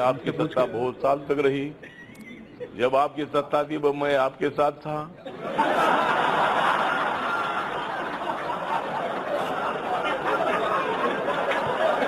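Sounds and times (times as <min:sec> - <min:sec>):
crowd laughing and chattering: 0:05.1 - 0:12.0.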